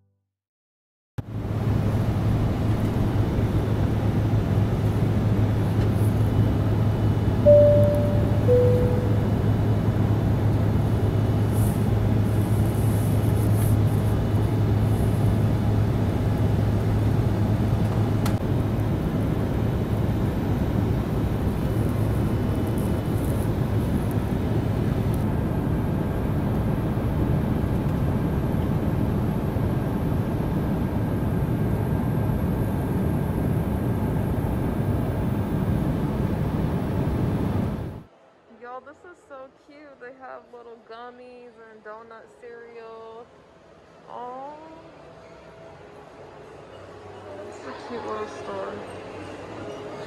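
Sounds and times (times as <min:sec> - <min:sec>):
vehicle running noise: 0:01.2 - 0:38.1
low hum: 0:01.2 - 0:39.2.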